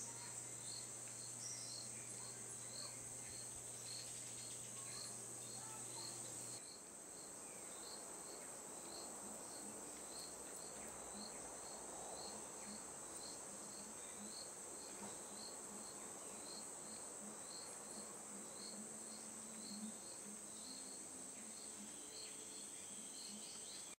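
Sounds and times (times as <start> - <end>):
high-pitched insect buzz: 0.0 - 6.8
insect chirping: 0.0 - 24.0.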